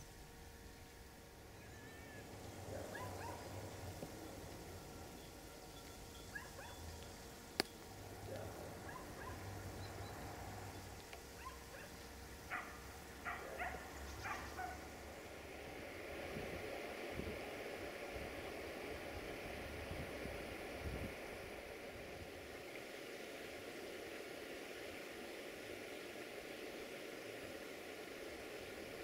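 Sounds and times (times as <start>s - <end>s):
running water hiss: 0.0s - 29.0s
dog barking: 2.9s - 3.5s, 6.3s - 6.8s, 8.8s - 9.5s, 11.4s - 11.9s, 12.5s - 14.8s.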